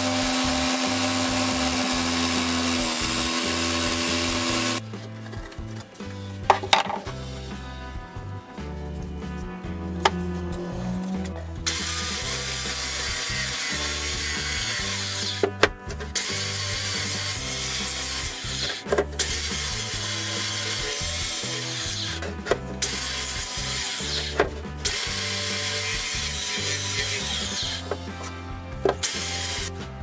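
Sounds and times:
handheld electric power tool running: 0:00.0 - 0:04.8, 0:11.6 - 0:15.5, 0:16.2 - 0:22.2, 0:22.8 - 0:28.0, 0:29.0 - 0:29.8.

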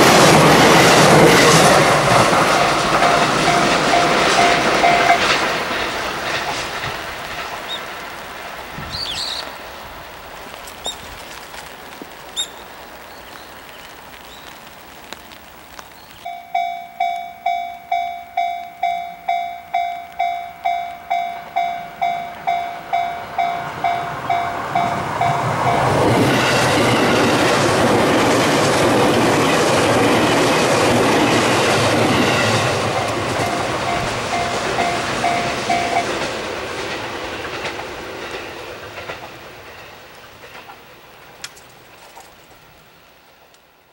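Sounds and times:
train wheels clattering over rail joints: 0:00.0 - 0:09.1, 0:18.9 - 0:42.3
level crossing bell ringing: 0:02.4 - 0:05.5, 0:16.3 - 0:26.3, 0:32.3 - 0:36.3.

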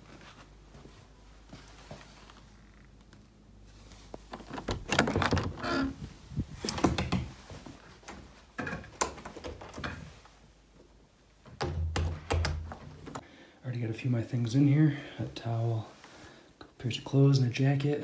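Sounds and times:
door squeak: 0:04.6 - 0:06.0.

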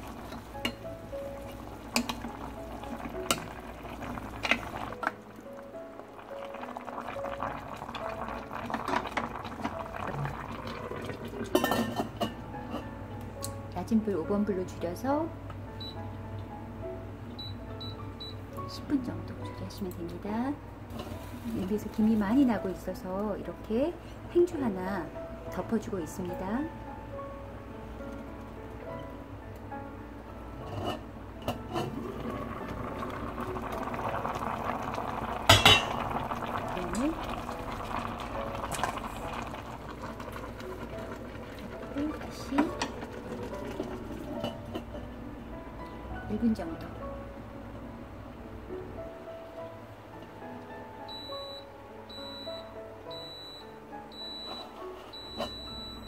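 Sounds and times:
stew bubbling in a pot: 0:00.0 - 0:12.2, 0:31.6 - 0:45.0.

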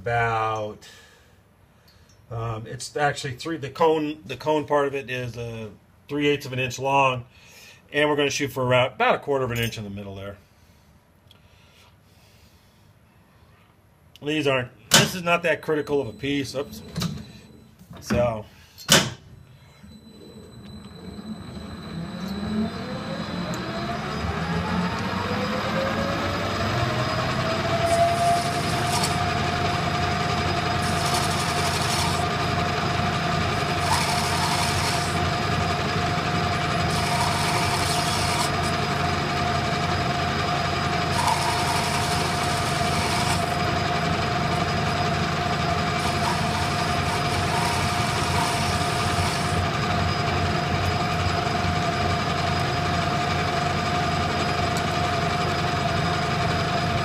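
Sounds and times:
metal lathe whine: 0:19.8 - 0:57.0
cutting tool hissing on brass rod: 0:27.9 - 0:29.3, 0:30.8 - 0:32.3, 0:33.6 - 0:35.2, 0:36.6 - 0:38.7, 0:41.1 - 0:43.6, 0:46.0 - 0:49.6.

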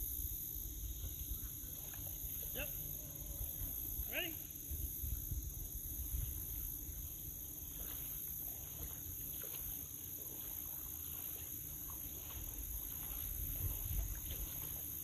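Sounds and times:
water splashing: 0:01.0 - 0:04.2, 0:06.3 - 0:15.0
wind rumble on microphone: 0:03.2 - 0:09.6, 0:12.1 - 0:15.0.

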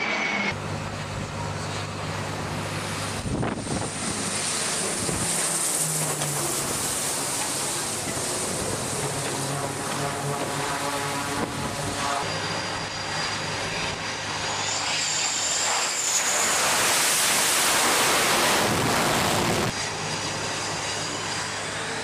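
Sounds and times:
high thin engine whine: 0:00.0 - 0:22.0
propeller hum: 0:00.0 - 0:22.0
wind noise on microphone: 0:03.1 - 0:04.2, 0:04.8 - 0:05.4, 0:10.0 - 0:12.2, 0:18.4 - 0:19.8.

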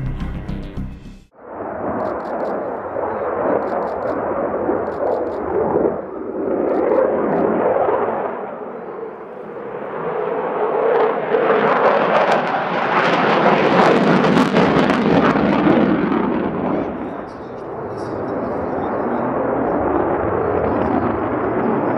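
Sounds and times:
fighter jet roaring overhead: 0:01.3 - 0:21.9.

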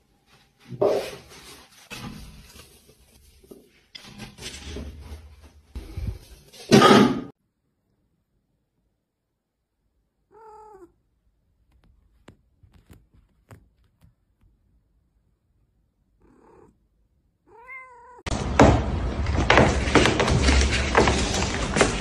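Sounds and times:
cat meowing: 0:10.2 - 0:11.0, 0:16.2 - 0:16.8, 0:17.4 - 0:18.3
loud rough noise: 0:18.3 - 0:22.0.

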